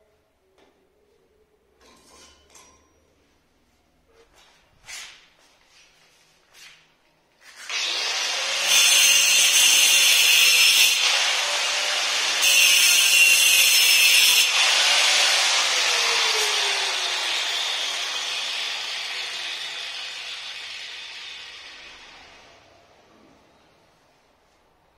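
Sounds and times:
angle grinder cutting stone: 0:07.7 - 0:22.4.

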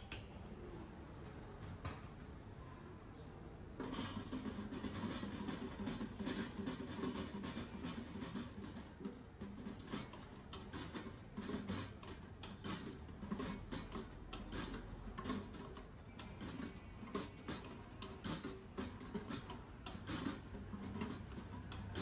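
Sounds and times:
low background murmur: 0:00.0 - 0:22.0.

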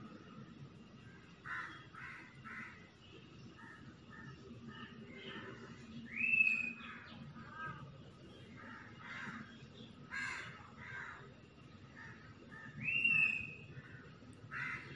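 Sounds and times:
crows cawing: 0:01.4 - 0:02.9, 0:08.6 - 0:11.3, 0:13.8 - 0:14.9.

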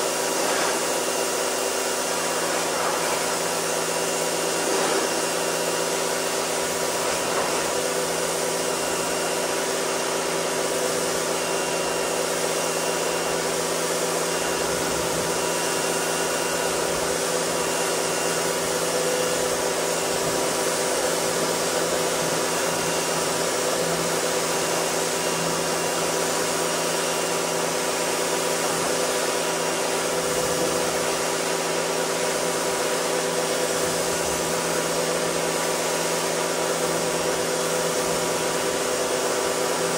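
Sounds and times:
water jet hissing: 0:00.0 - 0:09.4
pressure washer motor hum: 0:00.0 - 0:39.9.

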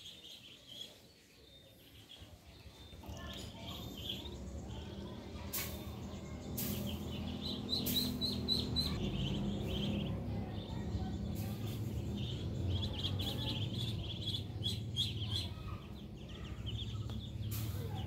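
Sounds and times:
ducklings peeping: 0:00.0 - 0:18.0
low rumble: 0:03.8 - 0:18.0.

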